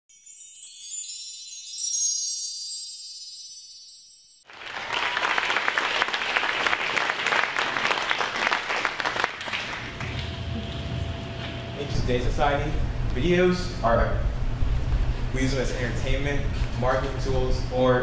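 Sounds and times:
chiming bell-like jingle: 0.1s - 4.5s
audience applause: 4.5s - 11.0s.

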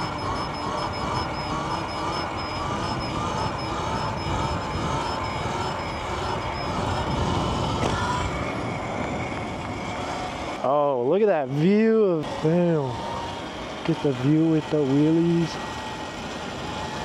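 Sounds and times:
electric motor whine: 0.0s - 17.0s.

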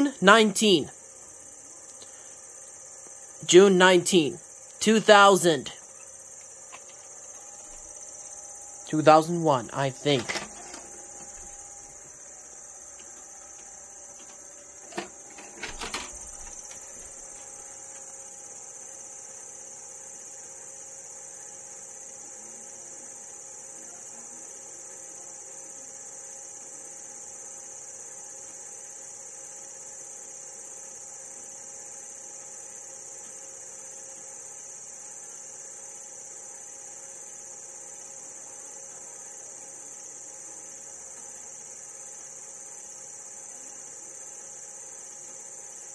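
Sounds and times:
faint hum: 0.0s - 19.3s
high-pitched hiss: 0.0s - 45.9s
vcr mechanical clicks: 9.8s - 12.0s, 12.9s - 17.4s.

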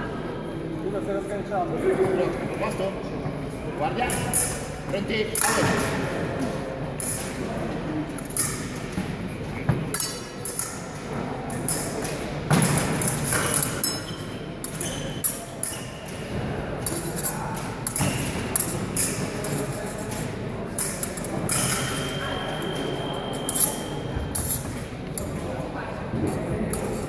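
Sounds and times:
voices in a large hall: 0.0s - 27.0s.

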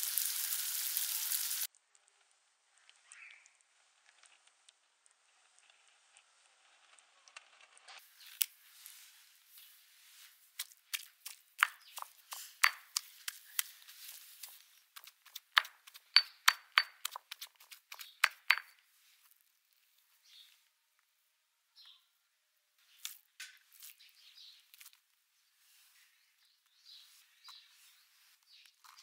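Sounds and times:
stone pestle pounding in mortar: 11.0s - 13.0s, 15.0s - 18.7s.

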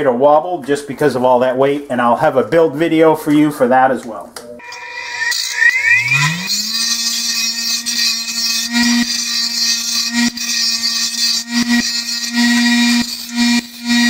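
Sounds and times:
bench grinder humming: 4.6s - 14.0s
steel grinding hiss: 4.6s - 14.0s.

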